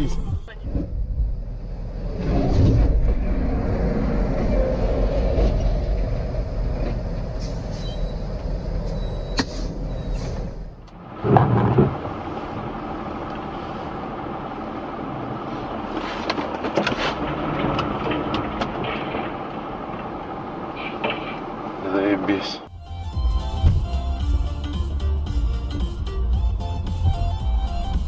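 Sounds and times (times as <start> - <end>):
road noise: 0.0 - 28.0
vehicle engine rumble: 0.0 - 28.0
loud thumps: 11.2 - 12.2, 23.1 - 24.2.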